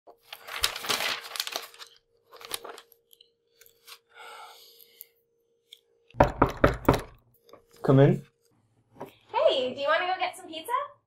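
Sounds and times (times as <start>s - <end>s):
paper rustling and crinkling: 0.1s - 4.0s.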